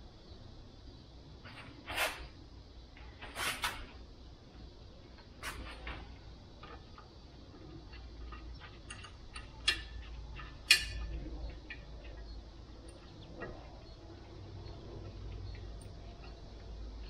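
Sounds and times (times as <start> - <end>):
hand tools tapping metal rim: 7.9 - 12.3.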